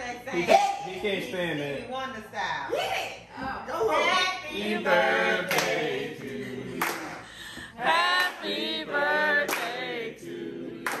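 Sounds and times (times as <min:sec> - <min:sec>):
voices singing together: 0:03.9 - 0:11.0.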